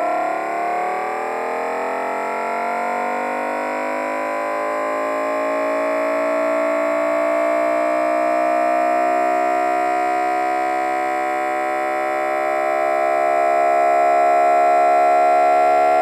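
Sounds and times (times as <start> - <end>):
engine revving: 7.2 - 16.0.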